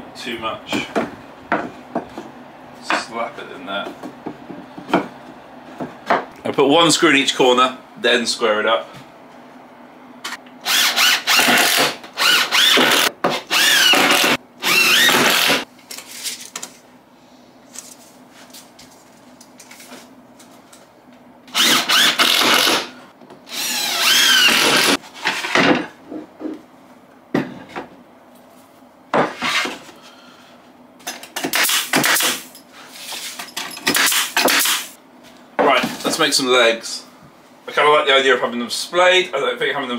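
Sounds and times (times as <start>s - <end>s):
pneumatic nail gun bursts: 10.6s - 15.6s, 21.5s - 25.0s, 31.4s - 32.5s, 33.8s - 35.0s
cordless drill driving screws: 10.7s - 15.6s, 21.5s - 22.9s, 23.5s - 25.0s.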